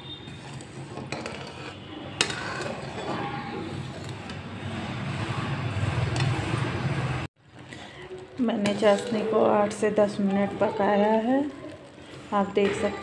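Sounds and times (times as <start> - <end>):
syrup boiling: 7.4 - 13.0.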